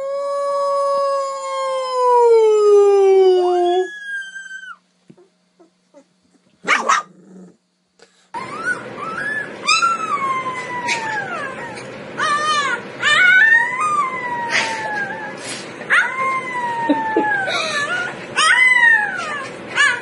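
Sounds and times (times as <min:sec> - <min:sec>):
puppy howling and yipping: 0:00.0 - 0:04.8, 0:08.4 - 0:20.0
puppy yelp: 0:08.4 - 0:20.0.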